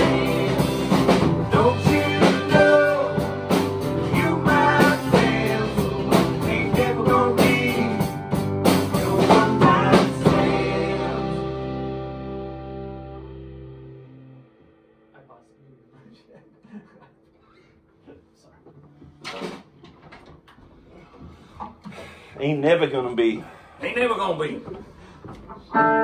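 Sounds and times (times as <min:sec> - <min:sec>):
drum hits: 0:00.0 - 0:10.8
acoustic guitar: 0:00.0 - 0:14.8
electric guitar lead: 0:00.0 - 0:15.3, 0:25.5 - 0:26.0
guitar chord ringing out: 0:10.8 - 0:15.8.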